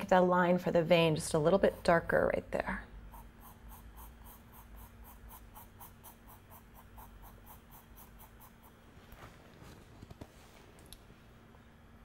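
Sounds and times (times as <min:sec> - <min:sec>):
pencil scratching on paper: 0:03.0 - 0:08.9.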